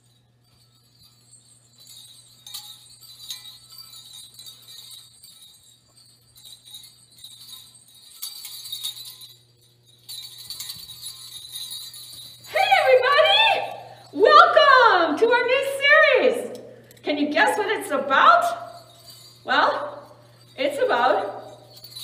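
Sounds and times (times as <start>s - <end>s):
low steady hum: 0.0s - 22.0s
small bells jingling: 0.0s - 22.0s.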